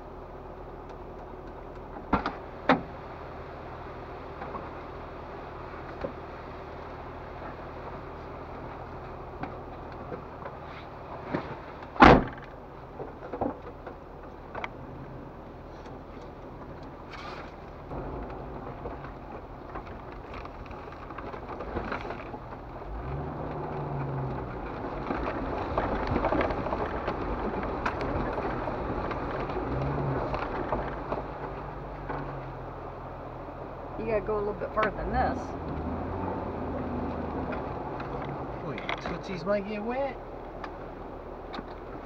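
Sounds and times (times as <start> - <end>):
vehicle engine running low: 0.0 - 42.0
vehicle clunks and knocks: 1.9 - 3.0, 9.0 - 14.8, 17.2 - 32.6
water splashing around tyres: 16.3 - 42.0
engine revving: 17.1 - 32.8, 34.0 - 39.9.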